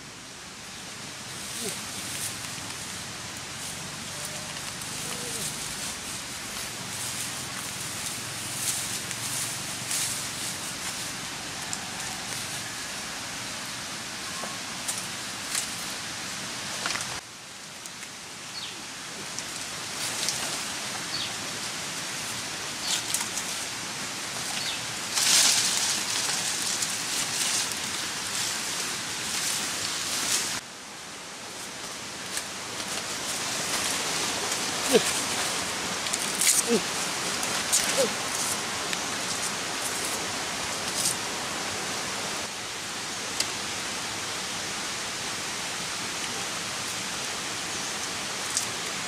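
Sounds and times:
leaves brushing: 0:00.0 - 0:18.2, 0:18.9 - 0:42.6
footsteps through rustling undergrowth: 0:01.3 - 0:12.9, 0:19.4 - 0:30.6, 0:31.5 - 0:41.2.

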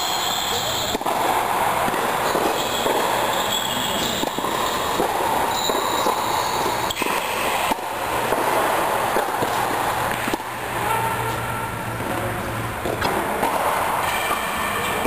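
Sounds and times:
tennis ball racquet strikes: 0:00.7 - 0:10.6, 0:12.8 - 0:14.9.

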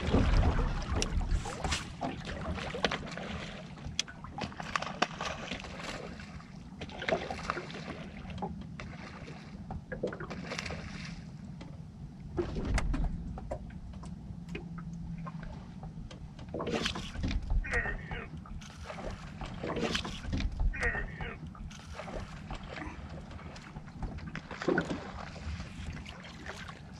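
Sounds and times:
water splashes: 0:00.0 - 0:11.6, 0:12.3 - 0:26.9
low steady hum: 0:00.0 - 0:26.9.

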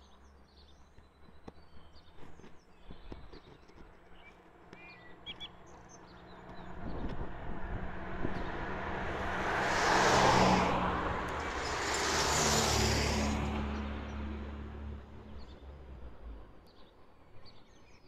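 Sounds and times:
cars driving past: 0:05.5 - 0:16.6.

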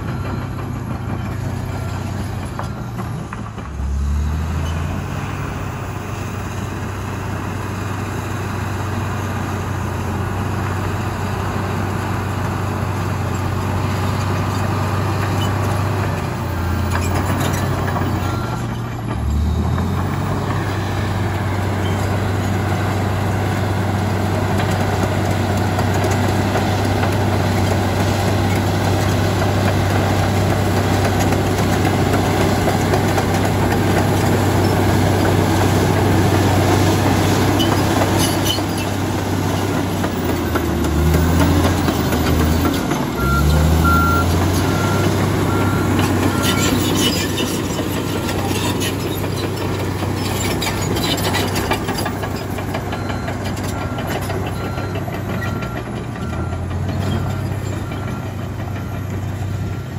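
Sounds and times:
bulldozer diesel engine under load: 0:00.0 - 0:59.9
reversing alarm beeping: 0:40.5 - 0:46.9, 0:52.9 - 0:59.9.

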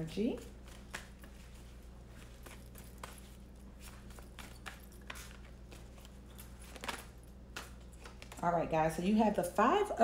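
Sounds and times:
low steady hum: 0:00.0 - 0:10.0
cards clicking and rustling: 0:02.3 - 0:08.4.

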